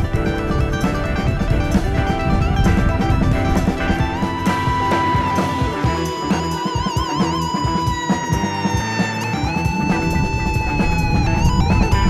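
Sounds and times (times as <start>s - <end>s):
instrumental jazz fusion jam: 0.0s - 12.0s.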